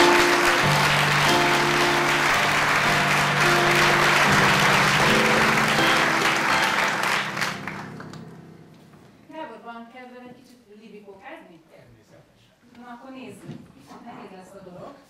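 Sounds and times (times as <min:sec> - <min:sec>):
audience applauding: 0:00.0 - 0:08.3
keyboard playing held notes: 0:00.0 - 0:09.3.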